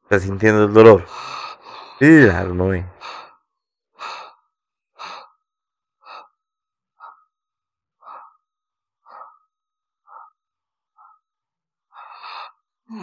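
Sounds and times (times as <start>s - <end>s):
man panting heavily: 1.0s - 2.3s, 2.9s - 3.4s, 4.0s - 4.4s, 5.0s - 5.3s, 8.0s - 8.4s, 9.1s - 9.4s.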